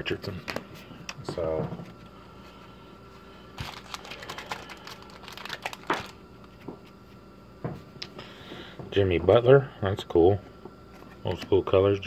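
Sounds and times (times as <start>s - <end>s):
wrapper crinkling and tearing: 3.6s - 6.2s.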